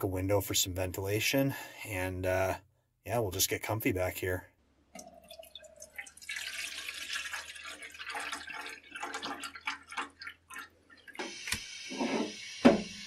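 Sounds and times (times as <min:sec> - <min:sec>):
water pouring into kettle: 0:05.0 - 0:13.0.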